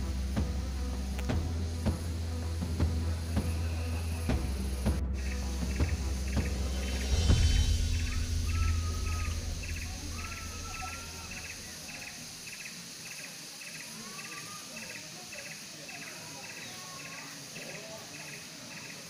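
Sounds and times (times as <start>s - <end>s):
low rumble: 0.0s - 12.4s
insects chirping: 0.0s - 19.0s
bird whistling: 5.2s - 12.3s.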